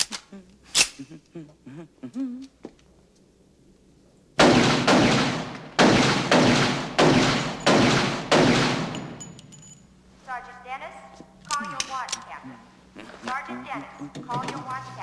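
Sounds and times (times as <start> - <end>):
pistol shots echoing indoors: 4.4 - 9.5.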